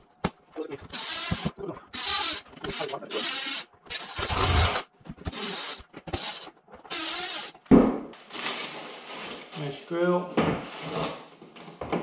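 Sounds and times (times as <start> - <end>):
cordless drill driving screws: 0.9 - 7.6.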